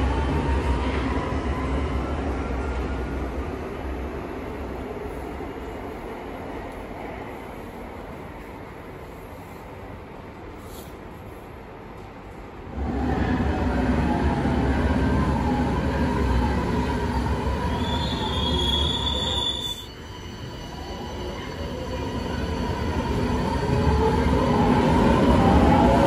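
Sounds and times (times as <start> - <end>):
metro train rumbling past: 0.0 - 26.0
high wheel squeal: 17.6 - 22.7.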